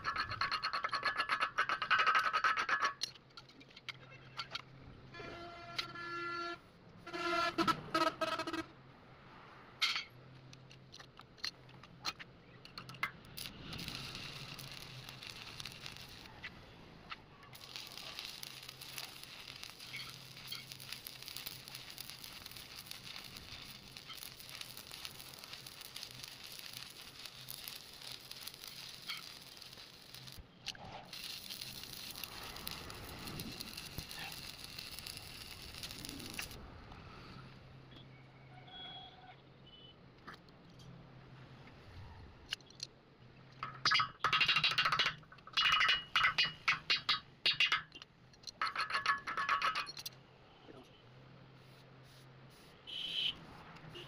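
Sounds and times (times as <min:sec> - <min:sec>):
welding arc crackling: 0:13.0 - 0:30.5, 0:31.1 - 0:36.6, 0:43.6 - 0:48.0.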